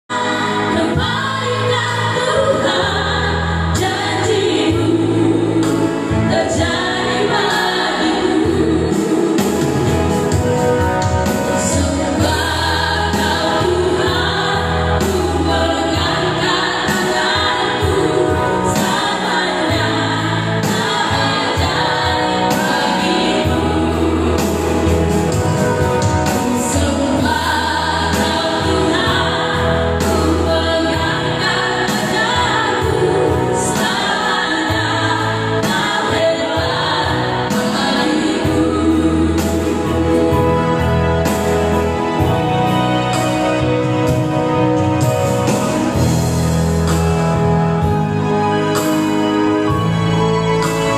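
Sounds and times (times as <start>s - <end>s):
women singing together: 0.1s - 9.9s, 11.5s - 25.1s, 26.3s - 40.6s
electric keyboard: 0.1s - 50.9s.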